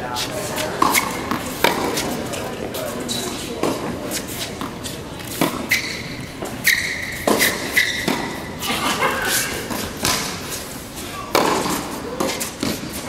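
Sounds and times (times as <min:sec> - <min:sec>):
shoes squeaking on court: 0:00.0 - 0:13.0
racket hitting ball: 0:00.6 - 0:02.2, 0:04.5 - 0:08.5, 0:09.3 - 0:10.6, 0:11.3 - 0:13.0.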